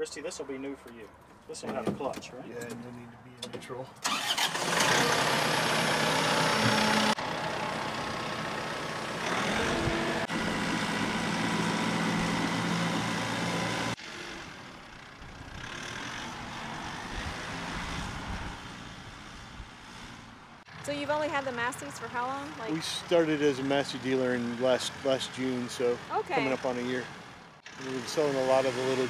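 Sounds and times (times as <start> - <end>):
tractor diesel engine running: 4.0 - 17.6.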